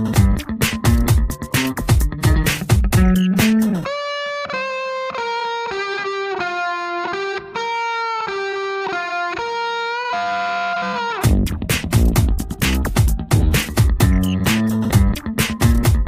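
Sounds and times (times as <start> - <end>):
drums and bass beat: 0.0 - 3.9, 11.2 - 16.0
held melody notes: 0.0 - 11.6.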